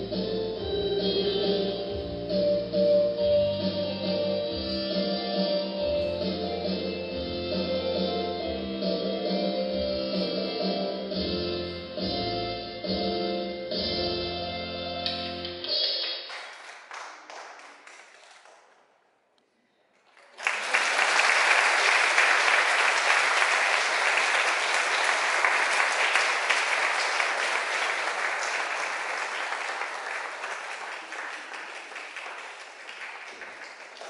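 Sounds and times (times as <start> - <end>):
audience applause: 16.3 - 18.7, 20.0 - 34.0.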